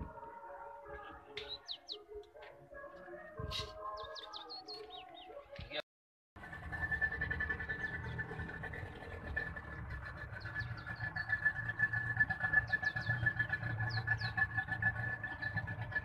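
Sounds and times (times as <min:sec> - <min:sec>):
outboard motor running: 0:06.4 - 0:16.0.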